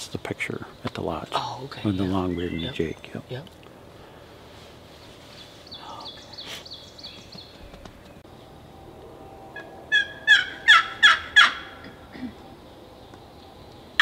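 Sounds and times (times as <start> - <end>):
turkey calling: 9.6 - 12.1.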